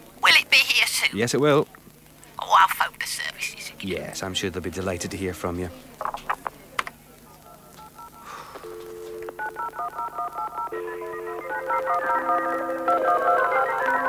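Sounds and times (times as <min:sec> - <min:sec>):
telephone clicks: 0:06.0 - 0:07.0
keypad beeps: 0:07.4 - 0:12.6
two-tone telephone notes: 0:07.4 - 0:14.0.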